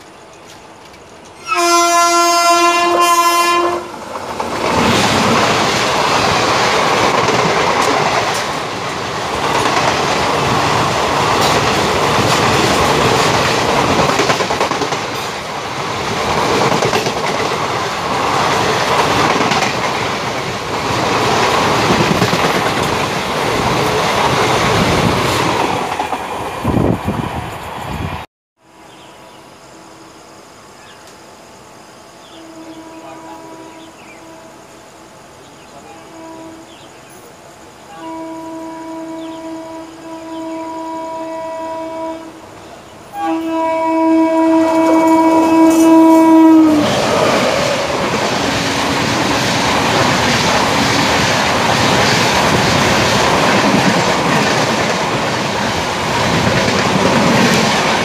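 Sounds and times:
train rumbling on rails: 0.0 - 30.2, 32.1 - 58.0
train horn blast: 1.4 - 4.0, 32.3 - 34.7, 35.8 - 36.9, 37.9 - 42.4, 43.1 - 47.0.

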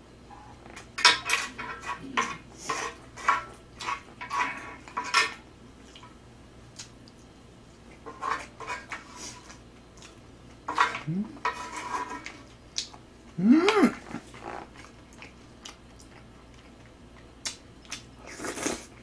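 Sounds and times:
spoon scraping griddle pan: 1.0 - 5.4, 8.0 - 9.6, 10.7 - 12.4.

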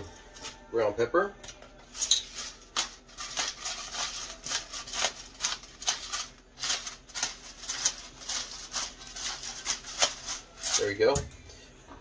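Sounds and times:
pepper grinder grinding: 1.9 - 11.3.

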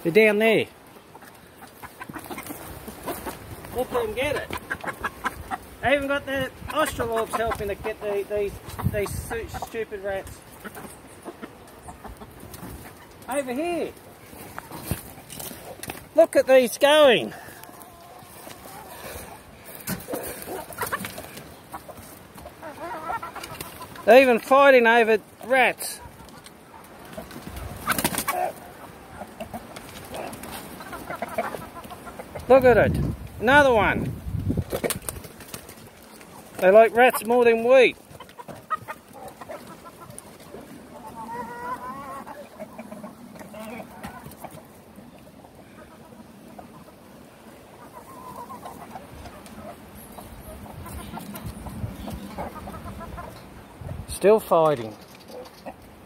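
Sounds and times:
chickens clucking: 0.0 - 56.0
hens squawking and scuffling: 0.0 - 56.0.

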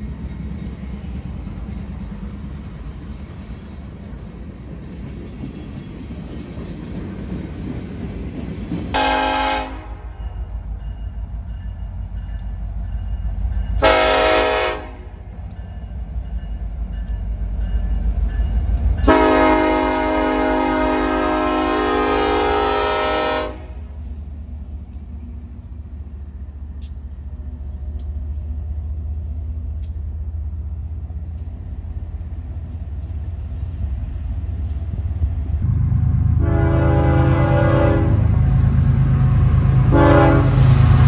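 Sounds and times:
diesel locomotives rumbling: 0.0 - 41.0
locomotive air horn blasts: 8.9 - 10.2, 13.8 - 15.2, 19.0 - 23.9, 36.4 - 38.6, 39.2 - 40.7.

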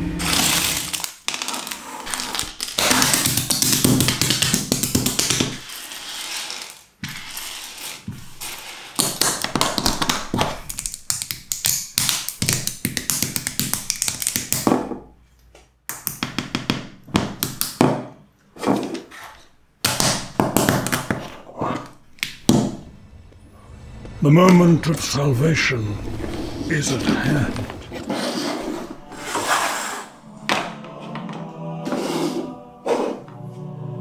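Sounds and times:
music: 0.0 - 1.0, 29.0 - 34.0.

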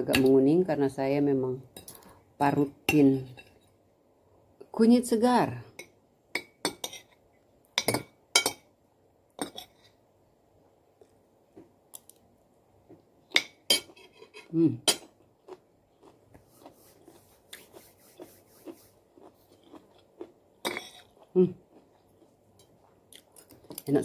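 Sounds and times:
chewing and mouth sounds: 15.0 - 23.9.

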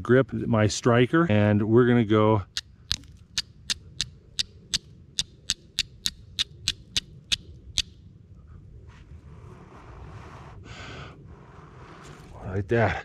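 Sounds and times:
steel striker scraping flint: 2.6 - 7.9.

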